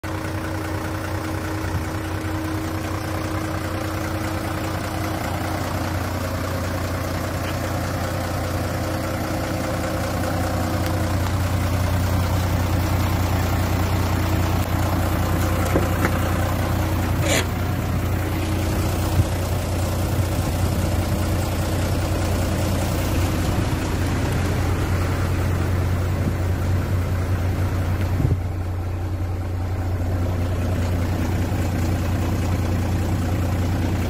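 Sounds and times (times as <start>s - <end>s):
diesel engine idling: 0.0s - 34.0s.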